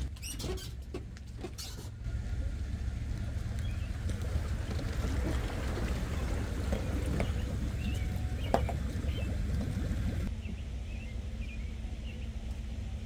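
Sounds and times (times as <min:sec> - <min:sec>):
water washing around hull: 0:00.0 - 0:10.3
low rumble: 0:01.9 - 0:13.0
bird chirps: 0:07.1 - 0:09.4, 0:10.3 - 0:12.4.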